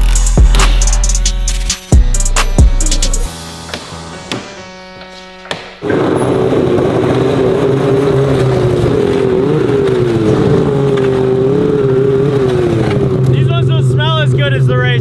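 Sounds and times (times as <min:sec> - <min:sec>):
snowmobile engine running: 0:05.8 - 0:15.0.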